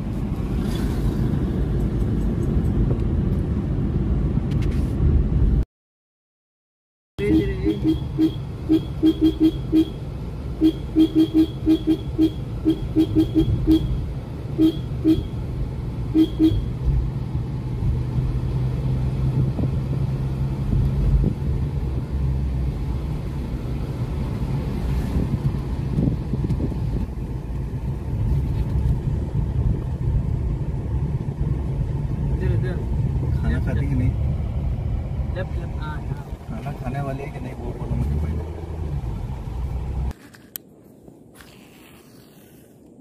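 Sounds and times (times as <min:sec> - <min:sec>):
car engine and tyre rumble: 0:00.0 - 0:05.6, 0:07.2 - 0:43.0
car horn rapid beeps: 0:07.2 - 0:15.4, 0:16.1 - 0:16.7.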